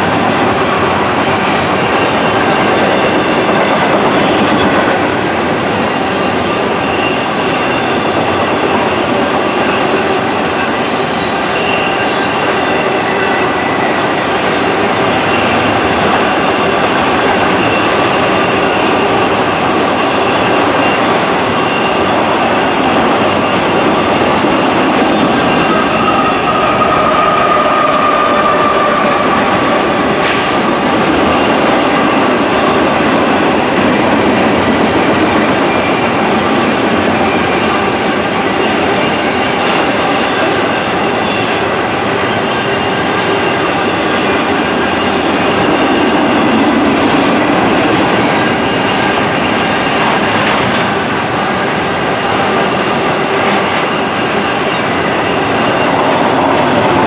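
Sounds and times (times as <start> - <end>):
train wheels rolling on rails: 0.0 - 57.0
locomotive passing: 54.5 - 57.0.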